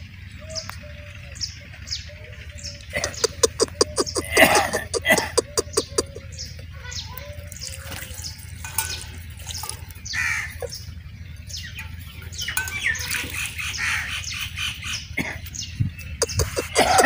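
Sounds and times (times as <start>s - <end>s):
parrots chirping and squawking: 0.4s - 17.0s
water pouring into dish: 7.5s - 10.0s.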